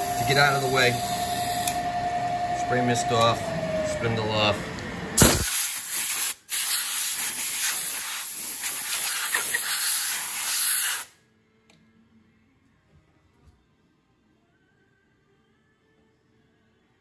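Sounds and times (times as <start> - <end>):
compressed air hissing from nozzle: 5.2 - 11.1.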